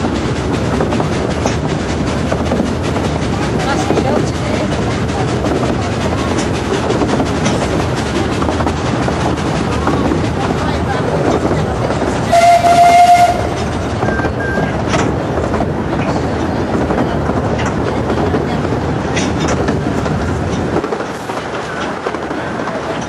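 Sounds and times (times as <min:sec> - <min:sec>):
train wheels clattering on track: 0:00.0 - 0:23.0
steam locomotive whistle: 0:12.2 - 0:14.7.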